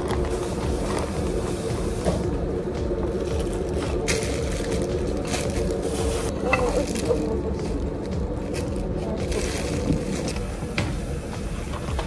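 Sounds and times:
steady background noise: 0:00.0 - 0:12.0
plastic bag crinkling: 0:03.2 - 0:10.5.

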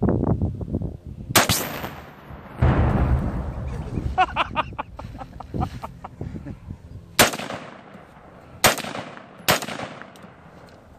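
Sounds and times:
rifle shots echoing: 0:01.4 - 0:03.9, 0:07.2 - 0:10.6
explosion rumble: 0:01.7 - 0:05.6.

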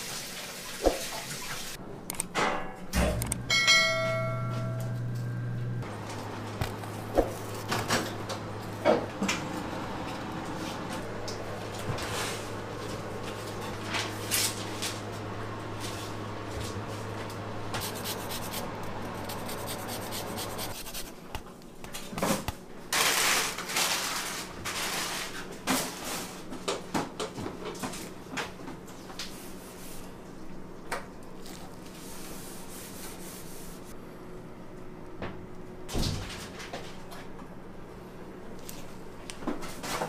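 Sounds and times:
steady low hum: 0:01.8 - 0:21.8
rubbing and handling noises: 0:17.8 - 0:21.4.

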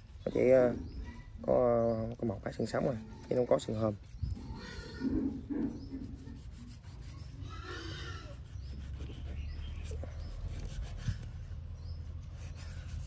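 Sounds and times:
knife scraping fish flesh: 0:02.6 - 0:07.5, 0:08.2 - 0:11.4.

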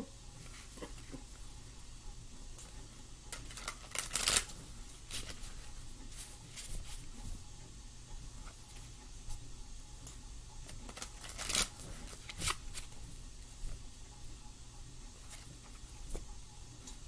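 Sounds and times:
cards being shuffled: 0:03.3 - 0:07.0, 0:10.7 - 0:13.0.

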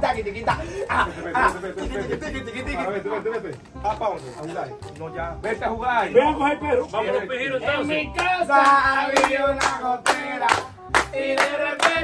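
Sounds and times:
percussive beat: 0:00.0 - 0:02.9, 0:08.0 - 0:12.0.

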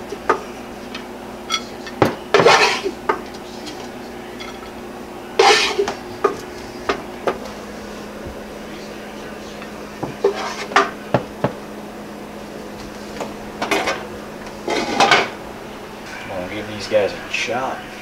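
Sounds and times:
wooden spoon scraping a pot: 0:10.2 - 0:10.8.

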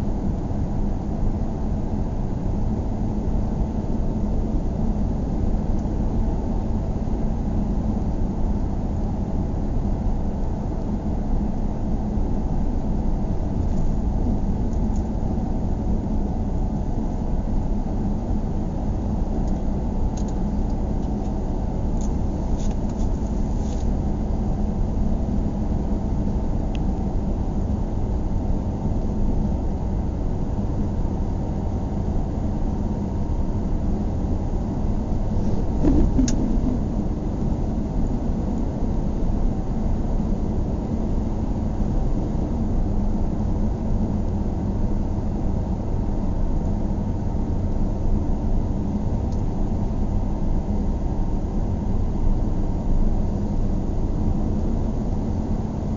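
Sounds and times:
car road and engine noise: 0:08.9 - 0:30.2, 0:31.0 - 0:44.2.

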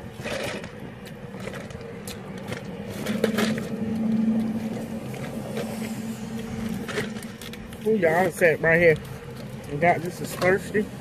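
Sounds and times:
plastic cup and straw rustling: 0:00.0 - 0:10.8
car engine idling: 0:01.4 - 0:11.0.

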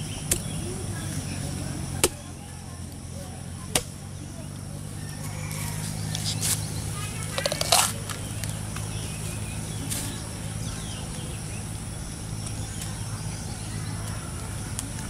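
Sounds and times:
steady low hum: 0:00.0 - 0:15.0
coconut husk cracking and tearing: 0:07.2 - 0:08.6.

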